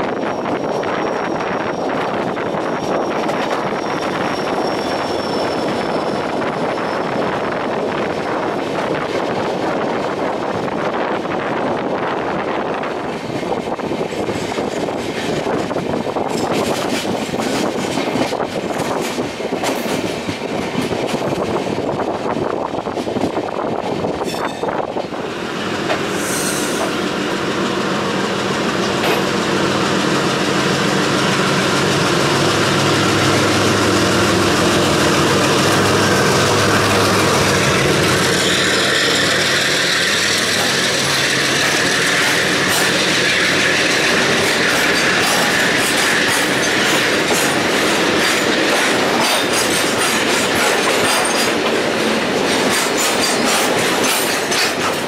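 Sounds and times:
freight train rumbling by: 0.0 - 55.0
train wheels clacking over rail joints: 14.1 - 21.9, 28.8 - 29.5, 34.9 - 55.0.

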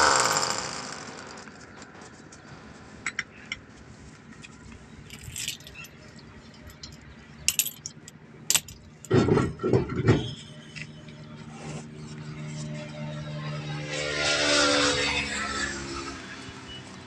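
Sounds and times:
wheel nuts clinking: 5.1 - 9.6.

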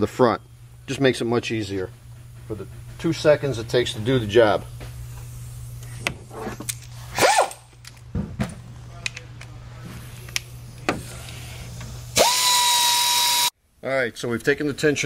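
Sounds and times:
cordless power tool whirring: 12.2 - 13.5.

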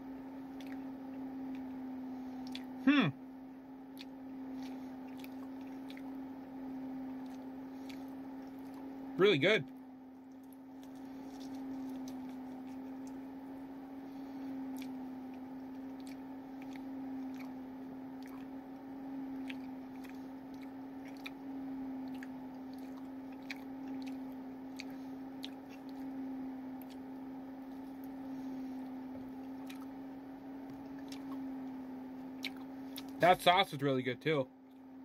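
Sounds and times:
steady low hum: 0.0 - 35.0
person chewing: 0.5 - 0.9, 2.4 - 2.8, 3.9 - 6.2, 7.2 - 8.9, 10.3 - 13.2, 14.7 - 15.0, 15.8 - 17.6, 18.2 - 18.6, 19.3 - 26.2, 29.5 - 30.0, 30.8 - 31.5, 32.3 - 33.2.

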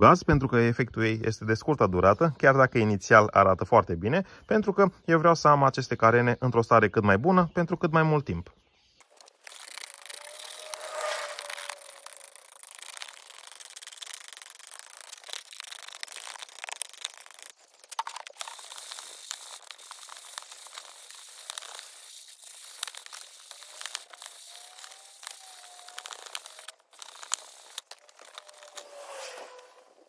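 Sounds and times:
sandpaper rubbing on plastic: 9.0 - 29.8.

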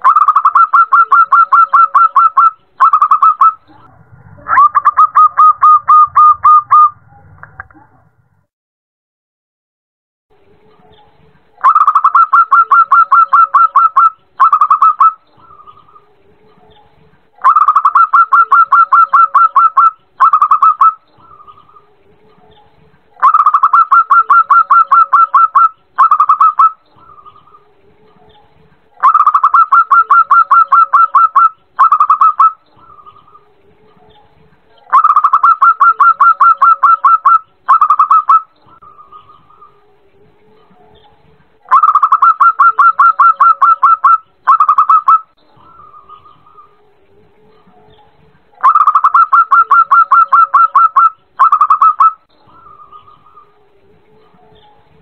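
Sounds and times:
dove cooing: 0.0 - 7.0, 11.6 - 16.8, 17.4 - 21.9, 23.2 - 27.8, 29.0 - 41.0, 41.7 - 48.0, 48.6 - 54.7.

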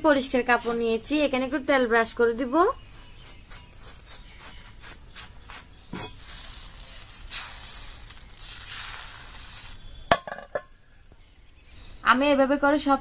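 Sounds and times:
batter sizzling in hot mould: 2.8 - 11.2
cloth rubbing cast iron: 2.9 - 10.7.

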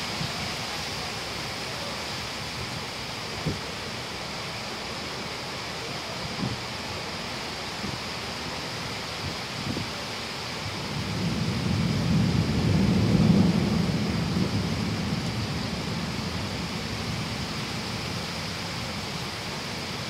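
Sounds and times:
heavy rain: 0.0 - 20.0
low roll of thunder: 10.7 - 19.2.

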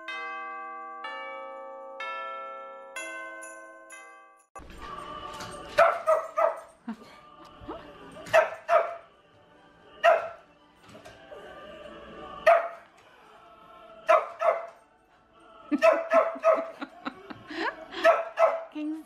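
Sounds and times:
christmas music from television: 0.0 - 19.0
small dog barking: 5.8 - 6.6, 8.3 - 9.0, 10.0 - 10.4, 14.1 - 14.7, 15.8 - 16.7, 18.0 - 18.7.

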